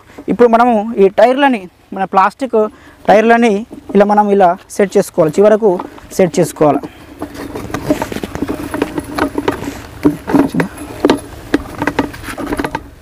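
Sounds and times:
plastic parts clicking and knocking: 6.8 - 13.0.

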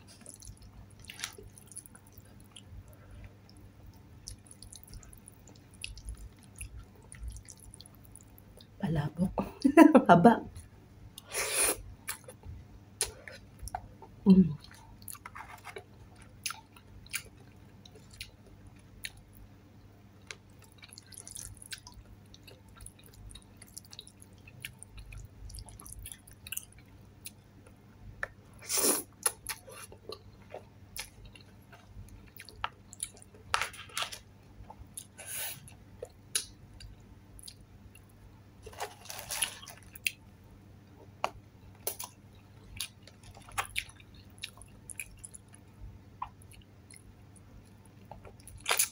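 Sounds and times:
chewing: 0.0 - 8.7, 14.6 - 19.3, 20.3 - 27.4, 29.2 - 34.0, 41.8 - 45.6.

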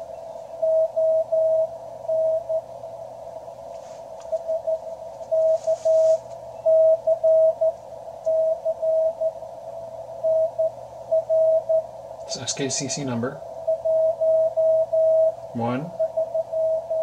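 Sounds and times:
morse code tone: 0.0 - 2.7, 4.2 - 9.4, 10.0 - 17.0
radio band hiss: 3.6 - 6.5, 12.0 - 13.7, 15.4 - 16.0.

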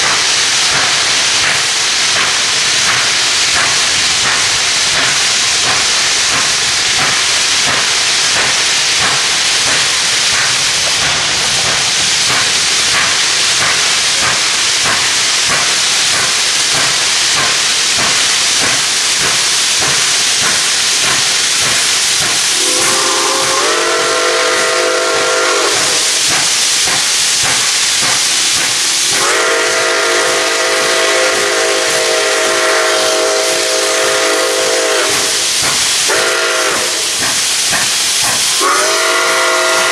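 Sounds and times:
steam hiss: 0.0 - 39.9
steam locomotive exhaust beats: 0.0 - 39.9
steam whistle blasts: 22.6 - 26.1, 29.1 - 37.3, 38.5 - 39.9.

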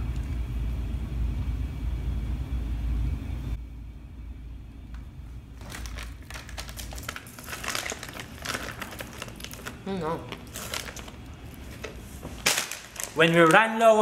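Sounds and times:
low steady rumble: 0.0 - 13.2
plastic snack bag crinkling: 5.6 - 14.0.

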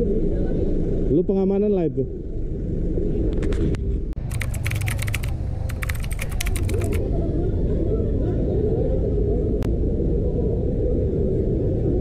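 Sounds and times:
runs of sharp clicks: 4.2 - 7.0.

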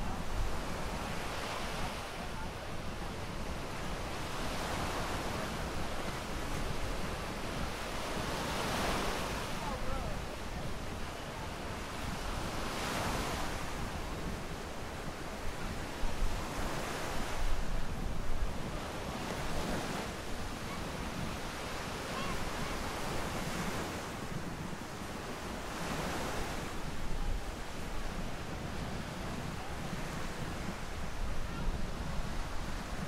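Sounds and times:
ocean surf breaking on beach: 0.0 - 33.0
wind buffeting microphone: 0.0 - 33.0.

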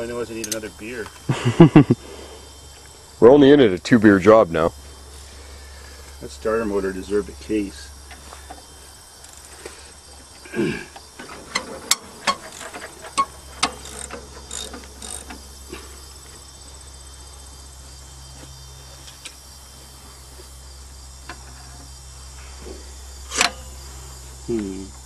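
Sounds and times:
crickets chirping: 0.0 - 25.0
wrench clicking on metal: 11.5 - 15.4.

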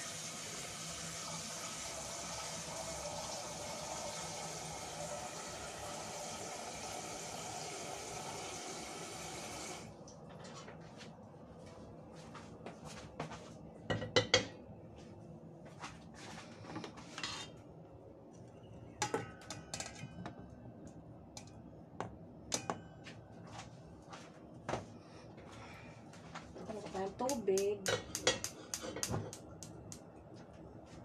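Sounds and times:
metal pot clanking: 19.0 - 20.4, 27.8 - 29.1.

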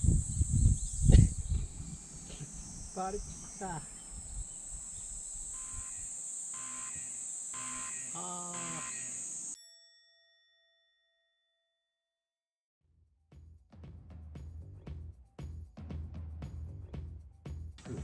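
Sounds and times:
high insect drone: 0.0 - 9.6
bell-like chime: 7.8 - 11.7.

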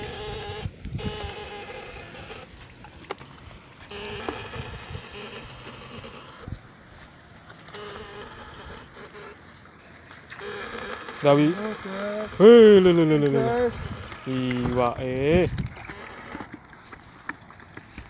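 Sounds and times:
electric fish shocker buzzing: 0.0 - 6.8, 7.5 - 9.6, 10.3 - 16.8
sharp clicks: 10.3 - 18.0.

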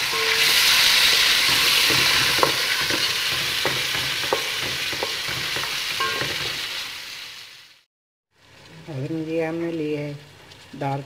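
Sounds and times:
spoon scraping metal pot: 0.0 - 6.6
meat sizzling in hot oil: 0.0 - 8.7.

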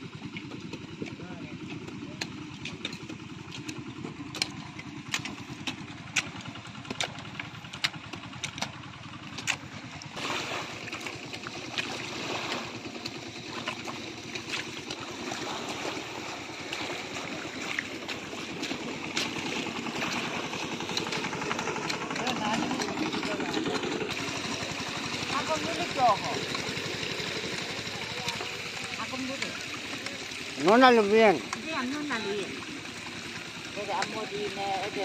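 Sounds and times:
small engine running: 0.0 - 35.0
hoes striking wet soil and stones: 0.3 - 26.6.

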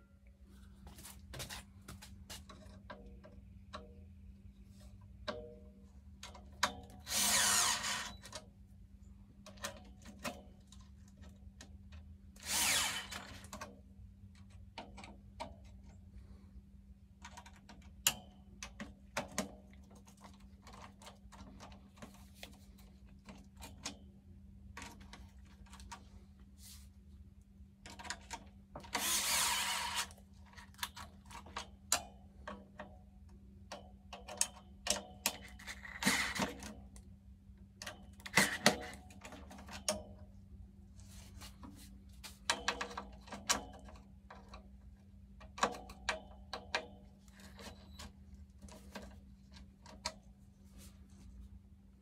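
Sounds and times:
faint steady hum: 0.0 - 52.0
power tool running: 7.1 - 8.1, 12.4 - 13.3, 29.0 - 30.1
clicks and knocks of tools handled: 13.0 - 16.0, 27.8 - 37.1, 41.3 - 51.2.

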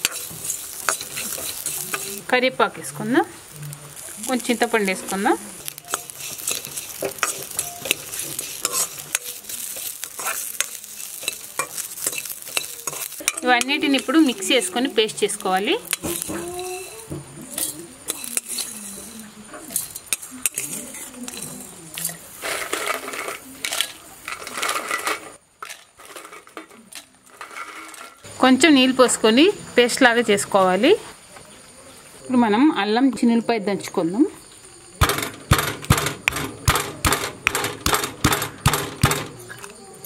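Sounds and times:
metal spoon scraping a pan: 0.0 - 28.2
onions and spices sizzling in a pan: 0.0 - 40.0.

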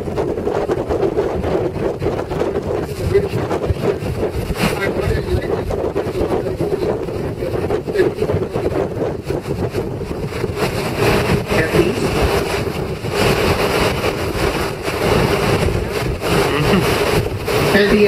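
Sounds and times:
wind on microphone: 0.0 - 18.0
road noise: 9.1 - 18.0
bus engine drone: 9.2 - 18.0.

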